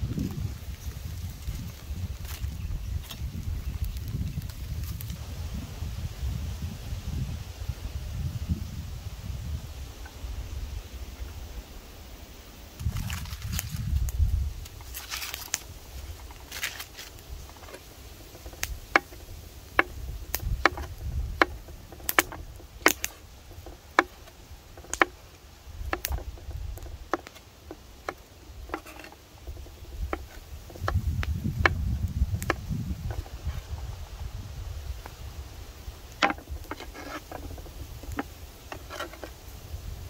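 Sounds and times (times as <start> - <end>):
foil rustling: 0.0 - 5.2, 12.8 - 25.3.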